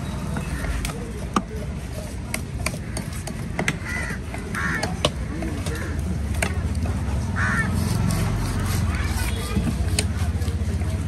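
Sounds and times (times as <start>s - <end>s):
low market rumble: 0.0s - 11.0s
crows cawing: 2.7s - 6.2s, 7.3s - 8.0s.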